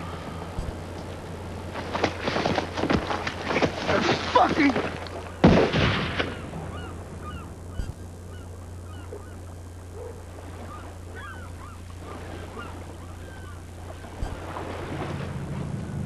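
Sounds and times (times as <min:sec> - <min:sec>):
steady low hum: 0:00.0 - 0:16.0
waterfowl calling: 0:06.4 - 0:15.3.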